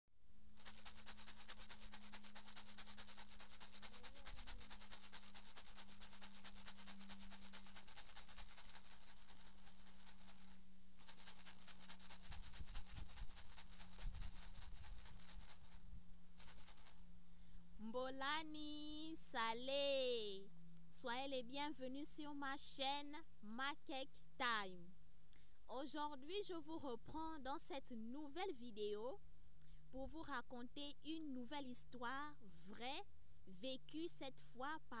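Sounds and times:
gourd rattle shaken fast: 0.6s - 17.1s.

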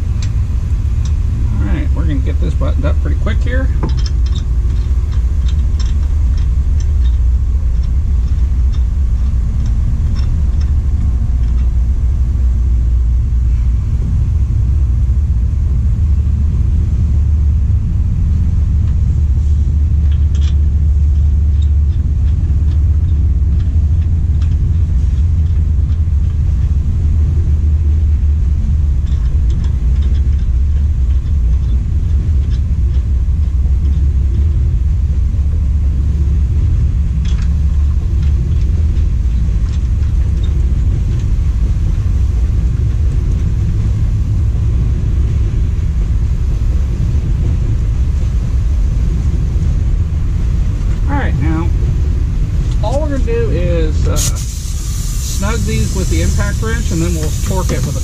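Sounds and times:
low rumble: 0.0s - 58.0s
faint metallic clicks of lug nuts: 1.8s - 12.1s, 19.9s - 27.4s, 28.6s - 36.0s.

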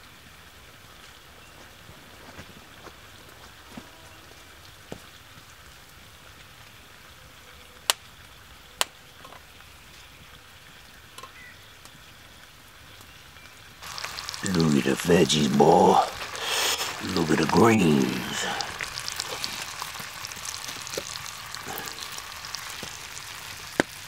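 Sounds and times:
utensil stirring a pan: 13.8s - 23.6s
vegetables sizzling in a skillet: 13.8s - 24.0s.

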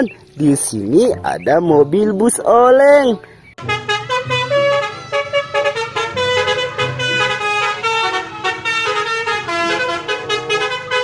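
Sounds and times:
bus musical horn melody: 3.6s - 11.0s.

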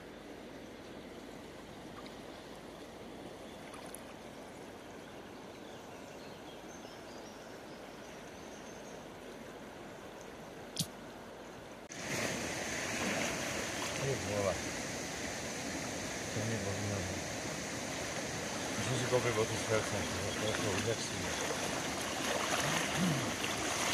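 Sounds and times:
sharp click: 10.8s - 11.0s
river water rushing over stones: 11.9s - 23.9s.

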